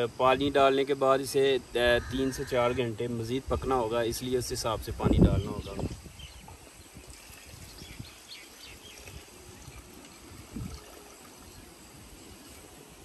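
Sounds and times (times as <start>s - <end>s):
water pouring into curry: 6.5s - 12.9s.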